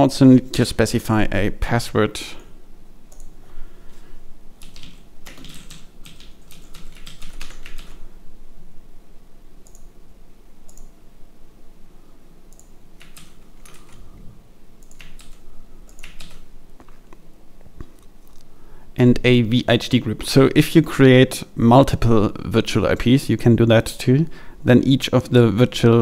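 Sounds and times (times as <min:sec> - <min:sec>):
computer keyboard typing: 0:04.6 - 0:08.0, 0:12.5 - 0:14.0, 0:14.8 - 0:16.5.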